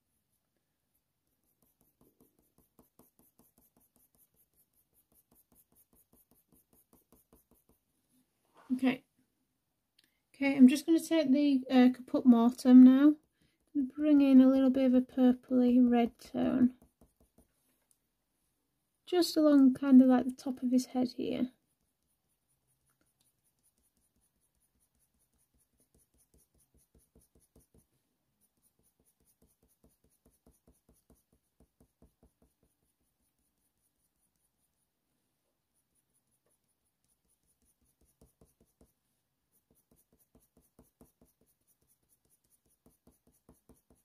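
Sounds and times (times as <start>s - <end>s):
pencil scratching on paper: 0.0s - 7.9s, 12.4s - 17.6s, 19.4s - 35.0s, 35.6s - 44.0s.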